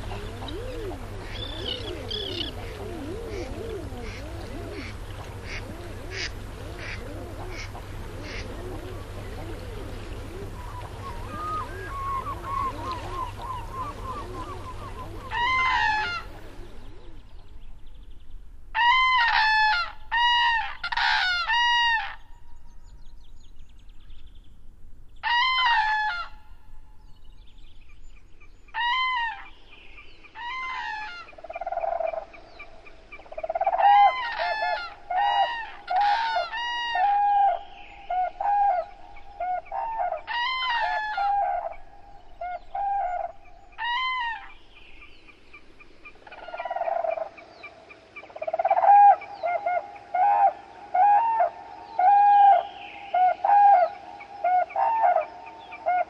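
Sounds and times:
cranes trumpeting: 0.0s - 16.6s
lower chatter of bird calls: 0.0s - 18.4s, 27.0s - 56.0s.

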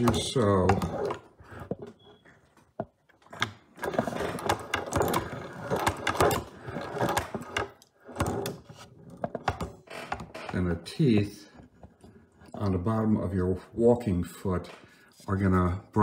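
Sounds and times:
sewing machine clattering: 3.8s - 8.8s.

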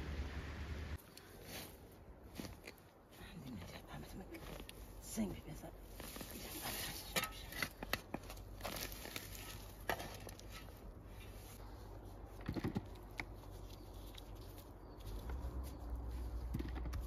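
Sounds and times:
dry stems rustling and snapping: 1.0s - 3.0s, 5.9s - 17.0s
shovel digging in loose soil: 5.9s - 11.6s.

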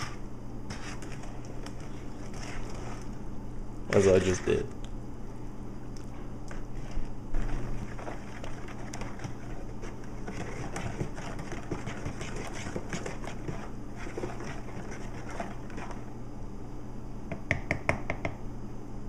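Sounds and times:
spoon scraping and sloshing in bowl: 0.0s - 3.2s, 6.5s - 16.1s
steady low hum: 0.0s - 19.0s.

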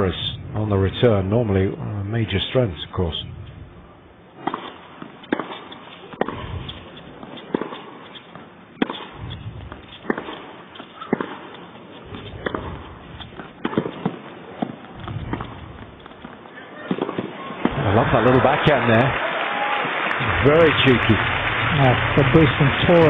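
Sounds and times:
ball bounces: 4.4s - 18.2s
rackets striking tennis ball: 4.4s - 18.3s
low crowd murmur: 16.5s - 23.0s.

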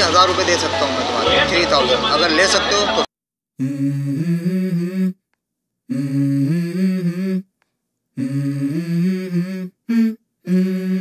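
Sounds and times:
person humming: 3.6s - 5.2s, 5.9s - 7.5s, 8.2s - 11.0s.

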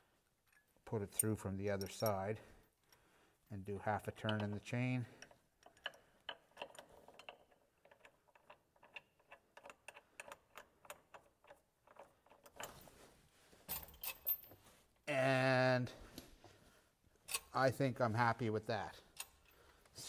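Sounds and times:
metal chain clinking and rattling: 4.0s - 14.7s.

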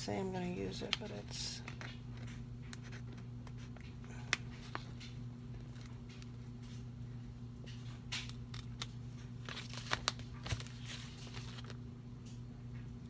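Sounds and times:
low electrical hum: 0.0s - 13.0s
paper rustling: 8.0s - 11.8s.

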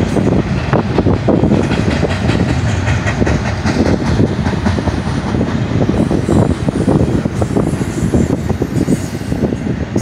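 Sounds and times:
steel wheels rumbling on rail: 0.0s - 10.0s
rapid clicks and clacks: 1.4s - 5.6s.

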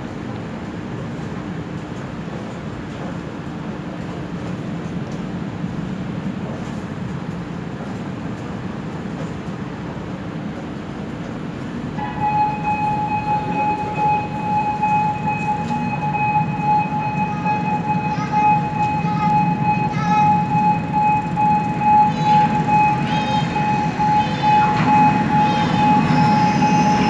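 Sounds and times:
train rumble in tunnel: 0.0s - 27.0s
high-pitched train tone: 11.9s - 27.0s.

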